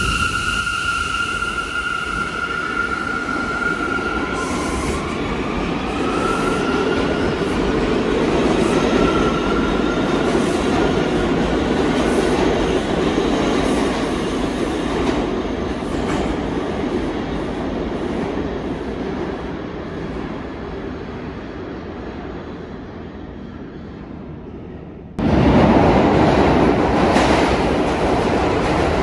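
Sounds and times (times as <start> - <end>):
subway train wheels rumbling: 0.0 - 29.0.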